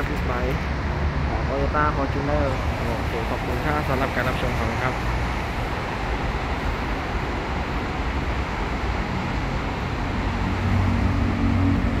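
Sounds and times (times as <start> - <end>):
road traffic rumble: 0.0 - 12.0
deep engine hum: 8.7 - 12.0.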